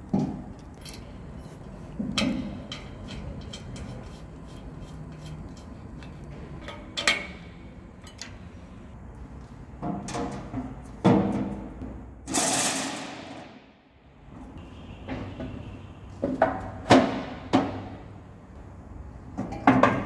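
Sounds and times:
metal tools clinking: 0.5s - 8.4s.

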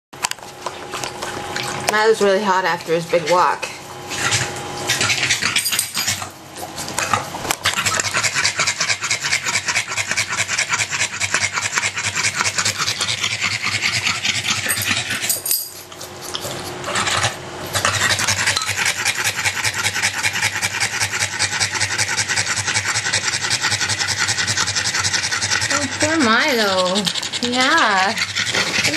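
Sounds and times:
dog panting fast: 7.8s - 15.3s, 15.9s - 28.9s.

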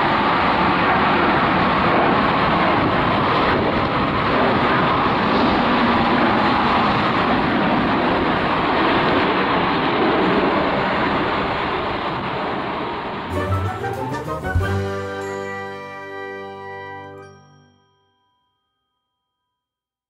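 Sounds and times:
loud jet engine noise: 0.0s - 13.3s.

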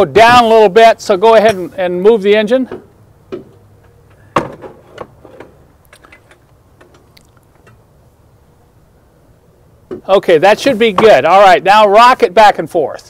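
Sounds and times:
tools clicking on engine: 5.4s - 7.8s.

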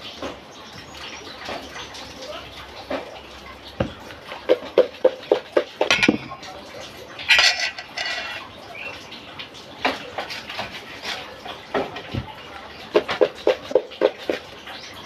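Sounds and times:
steel bowl clinking: 4.8s - 9.0s
spoon scraping a bowl: 7.3s - 8.5s.

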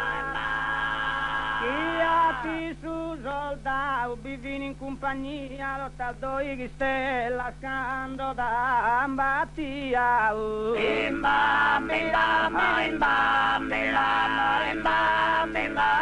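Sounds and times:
male voices singing held chord: 0.0s - 3.2s, 10.2s - 16.0s.

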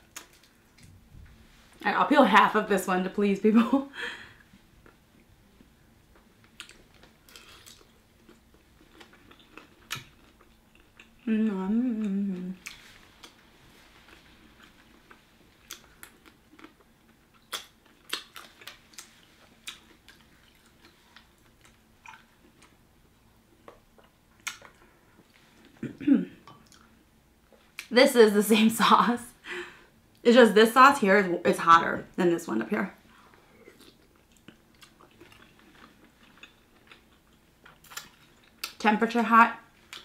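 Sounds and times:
chewing: 6.2s - 11.3s, 12.0s - 22.8s, 23.6s - 25.8s, 33.3s - 38.8s
person humming with enjoyment: 11.2s - 12.6s.

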